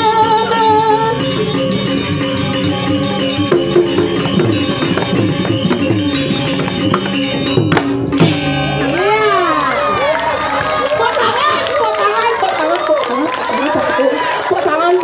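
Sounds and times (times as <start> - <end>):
gamelan ensemble playing: 0.0 - 14.9.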